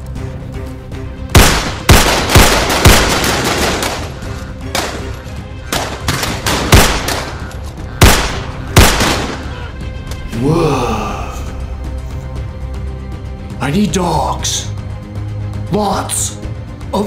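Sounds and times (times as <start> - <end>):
handgun shots with echo: 1.4 - 5.1, 5.7 - 7.4, 8.0 - 9.4.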